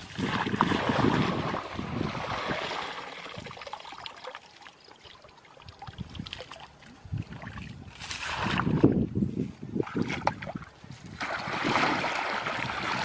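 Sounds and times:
dry grass rustling and crackling: 0:09.1 - 0:10.0, 0:10.8 - 0:11.4.

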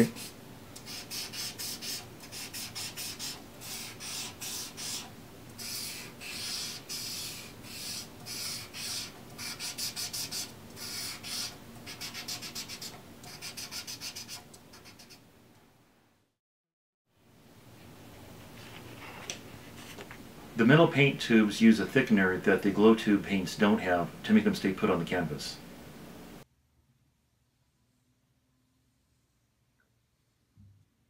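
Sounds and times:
applicator scratching on canvas: 0:00.9 - 0:15.2.

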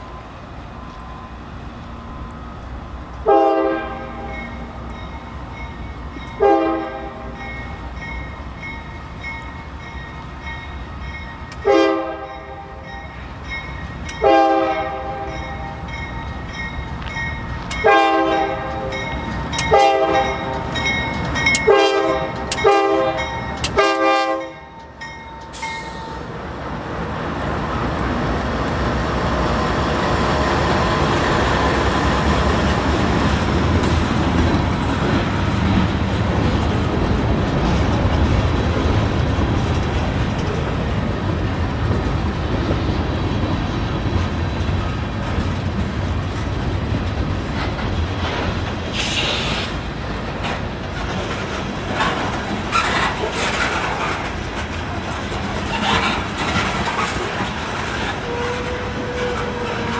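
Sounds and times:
wheels clacking on rail joints: 0:03.1 - 0:26.3, 0:27.9 - 0:59.9
locomotive air horn blasts: 0:03.2 - 0:04.4, 0:06.4 - 0:07.4, 0:11.6 - 0:12.8, 0:14.2 - 0:15.4, 0:17.8 - 0:19.0, 0:19.7 - 0:20.6, 0:21.6 - 0:24.7, 0:58.2 - 0:59.9.

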